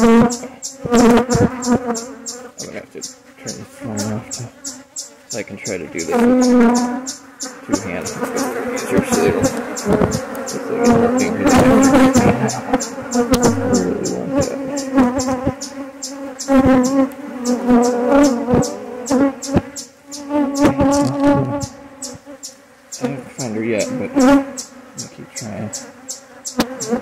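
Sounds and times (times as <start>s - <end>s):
bees buzzing loudly: 0.0s - 27.0s.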